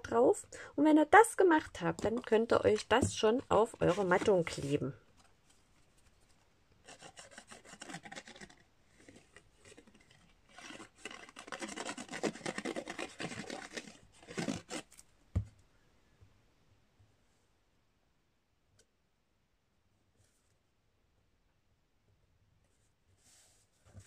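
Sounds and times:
glue tip scratching on cardstock: 2.0s - 4.7s, 6.8s - 15.0s.

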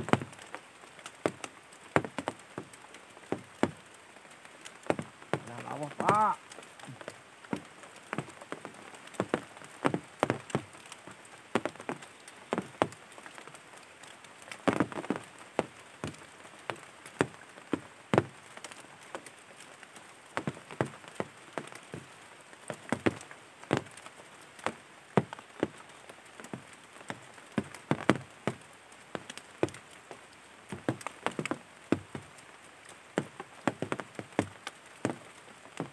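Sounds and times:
faint steady hiss: 0.0s - 35.9s
sharp irregular taps: 30.7s - 32.3s.

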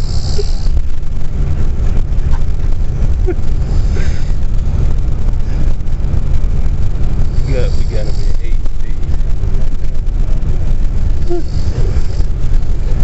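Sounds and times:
vehicle rumble from inside cabin: 0.0s - 13.0s.

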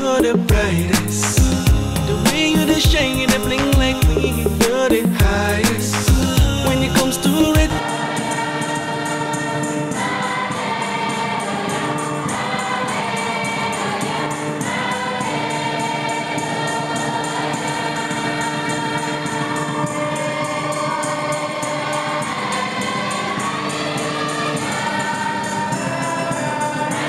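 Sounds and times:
steady percussive beat: 0.0s - 26.1s
choir singing a gospel hymn: 0.0s - 27.0s.

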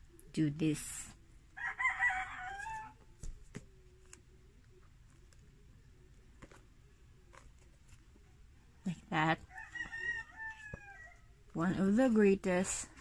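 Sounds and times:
rooster crowing: 1.6s - 3.0s, 9.5s - 11.3s
book pages flipping: 2.6s - 8.5s.

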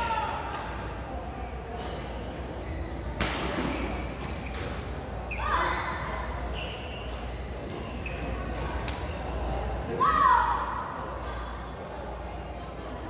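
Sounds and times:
shoes squeaking on court: 2.7s - 5.7s, 6.5s - 8.7s.

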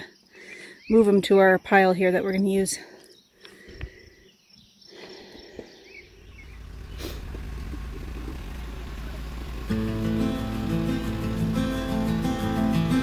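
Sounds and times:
faint outdoor background noise: 0.0s - 13.0s
low rumble: 6.1s - 13.0s
acoustic guitar music: 6.6s - 13.0s.

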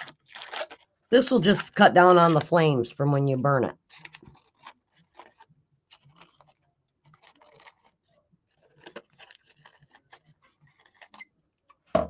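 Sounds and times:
scissors snipping paper: 1.4s - 2.5s, 3.9s - 11.9s.

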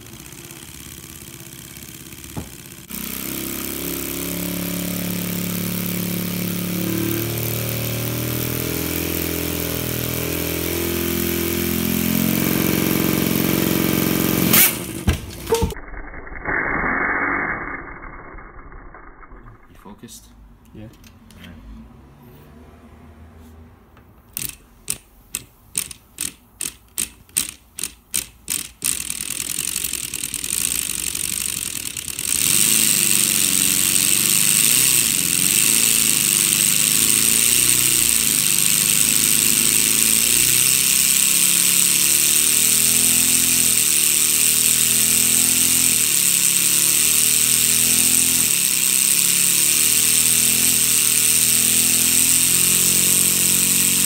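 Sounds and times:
toy engine plastic clatter: 24.3s - 54.0s.

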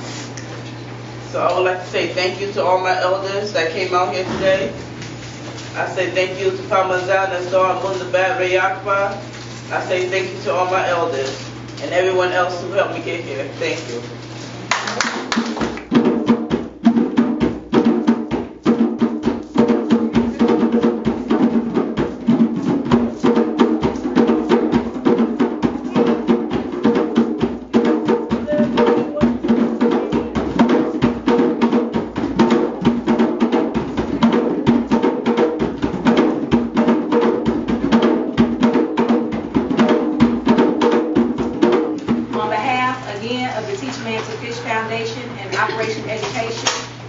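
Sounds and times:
hand drums playing fast rhythm: 3.8s - 8.9s, 15.0s - 46.5s.

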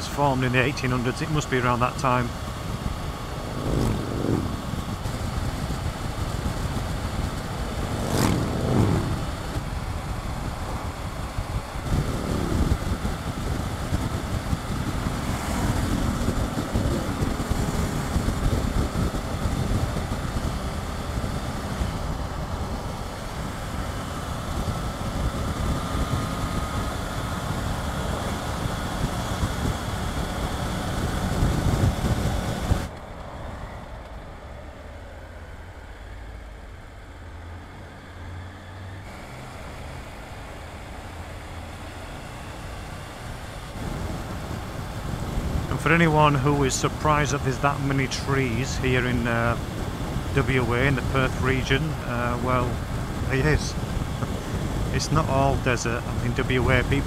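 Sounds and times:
motorcycle engine drone: 0.0s - 57.0s
wind and road noise: 0.0s - 57.0s.

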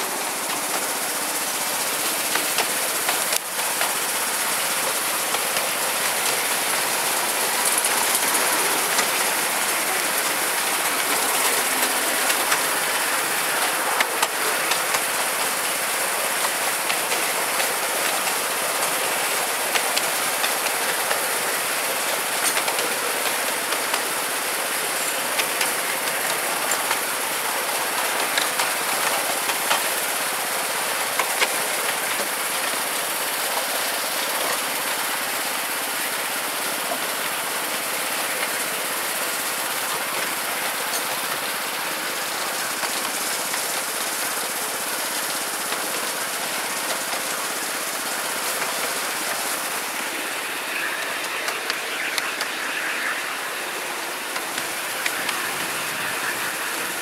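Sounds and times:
train wheels rattling on rails: 0.0s - 57.0s.

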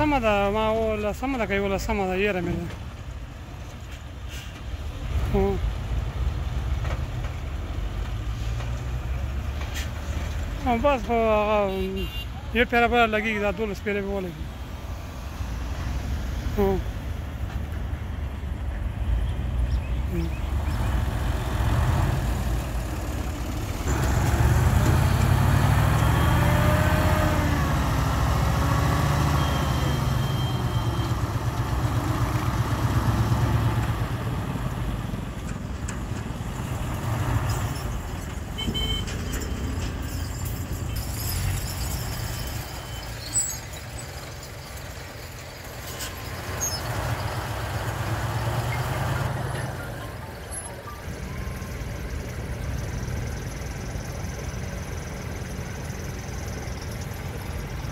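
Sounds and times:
diesel engine revving: 18.9s - 38.6s, 40.8s - 57.9s.

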